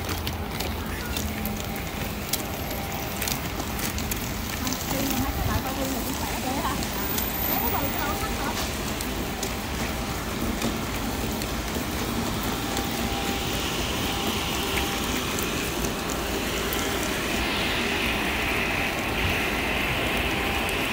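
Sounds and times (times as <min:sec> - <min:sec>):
buses idling: 0:00.0 - 0:20.9
high hiss: 0:13.6 - 0:20.9.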